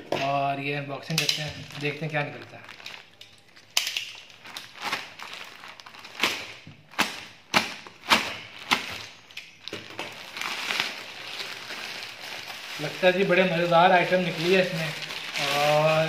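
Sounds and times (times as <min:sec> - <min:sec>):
plastic crinkling and rustling: 0:01.0 - 0:16.0
plastic mailer ripping: 0:04.2 - 0:16.0.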